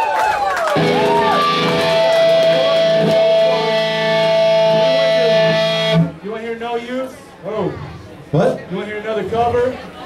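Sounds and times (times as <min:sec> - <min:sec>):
loud sustained guitar chord: 0:00.8 - 0:06.2
punk band playing live: 0:00.8 - 0:06.2.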